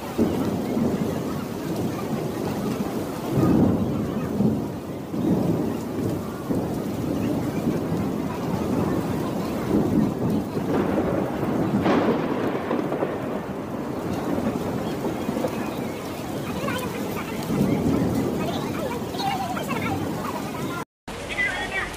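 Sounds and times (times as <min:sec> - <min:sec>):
heavy rain: 0:00.0 - 0:21.9.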